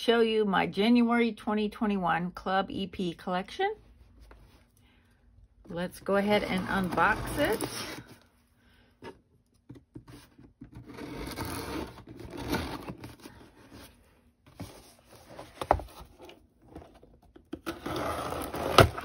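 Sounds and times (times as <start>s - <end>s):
cardboard being handled: 9.8s - 17.1s
blade slitting box tape: 17.6s - 19.0s.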